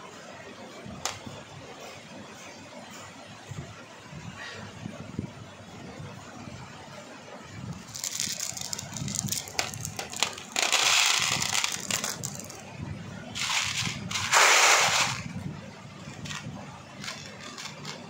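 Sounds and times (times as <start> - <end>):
beads rattling in plastic tray: 7.8 - 12.6, 13.4 - 15.3, 16.2 - 16.4, 17.0 - 18.0.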